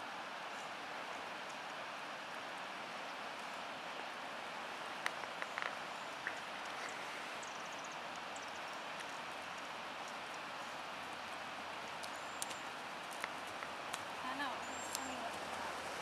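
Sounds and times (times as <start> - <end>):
steady outdoor hiss: 0.0 - 16.0
faint clicks: 11.8 - 14.1, 14.8 - 15.2.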